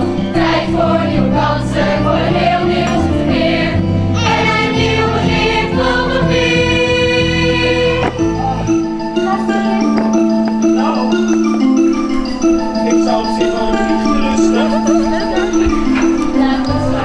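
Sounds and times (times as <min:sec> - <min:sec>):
choir singing: 0:00.0 - 0:08.7, 0:13.2 - 0:17.0
instrumental accompaniment: 0:00.0 - 0:17.0.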